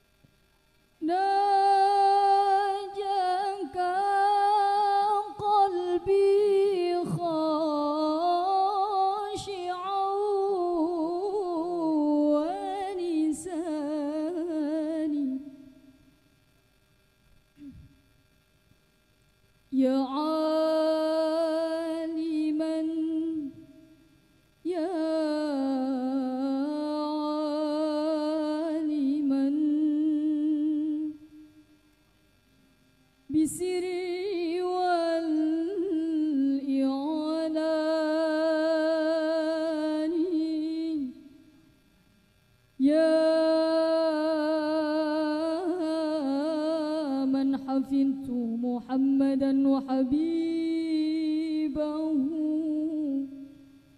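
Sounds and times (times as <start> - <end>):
woman singing unaccompanied: 1.0 - 16.0, 19.7 - 24.0, 24.6 - 31.5, 33.3 - 41.5, 42.8 - 53.7.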